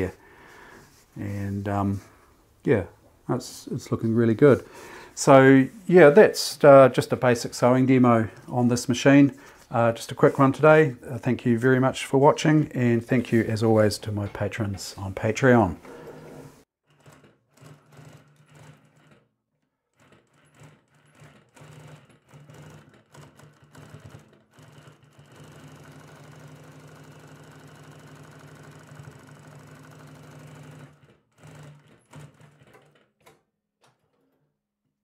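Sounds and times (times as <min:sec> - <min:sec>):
sewing machine stitching: 0:15.9 - 0:34.5.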